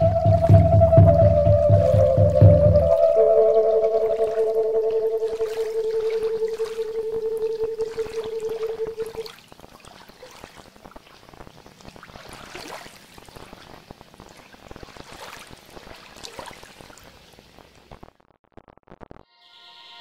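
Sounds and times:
held synth note: 0.0 - 9.2
water trickling and dripping: 0.0 - 17.0.

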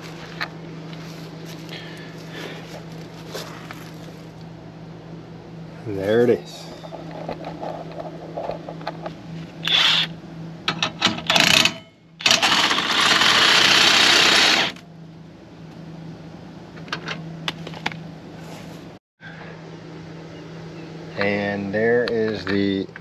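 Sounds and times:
cordless drill running: 9.6 - 10.1, 12.2 - 14.8.

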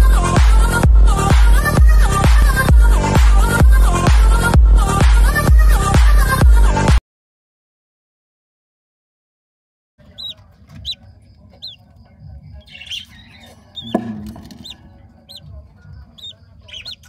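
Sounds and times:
lovebirds chirping: 10.0 - 17.0
knock: 13.8 - 14.6.

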